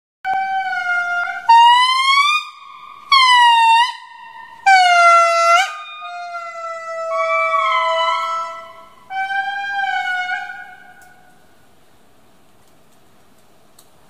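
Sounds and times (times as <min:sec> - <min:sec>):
indri wailing: 0:00.3 - 0:11.4.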